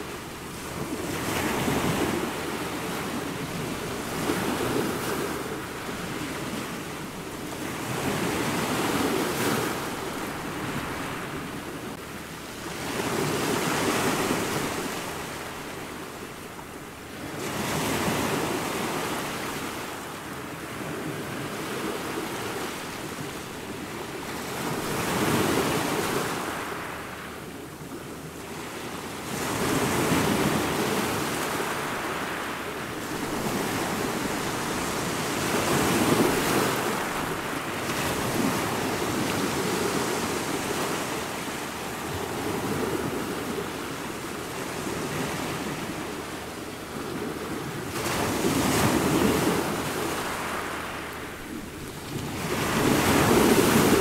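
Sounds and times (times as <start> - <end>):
ocean surf breaking over rocks: 29.3 - 46.3, 47.0 - 54.0.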